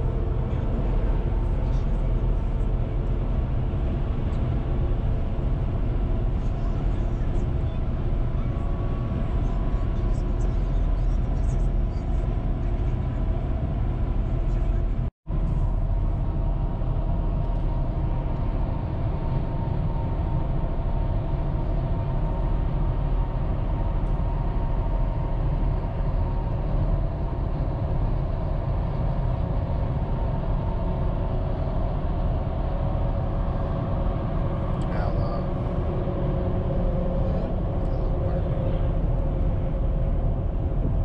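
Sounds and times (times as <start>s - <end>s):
faint steady hum: 0.0s - 41.0s.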